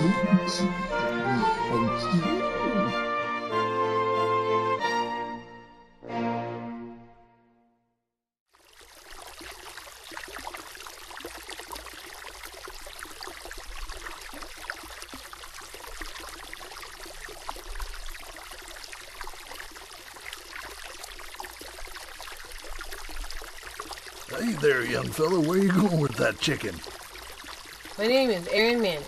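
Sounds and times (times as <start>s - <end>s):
stream babbling: 8.6s - 29.0s.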